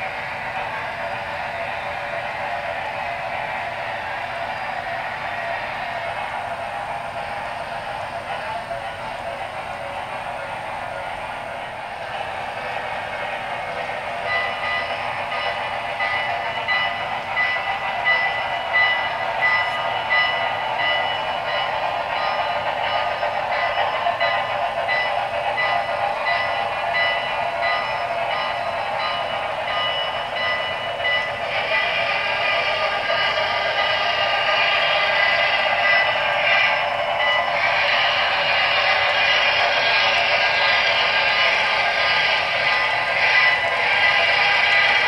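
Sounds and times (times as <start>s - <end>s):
model locomotive exhaust beats: 0.0s - 45.0s
steady ringing tone: 14.2s - 34.5s.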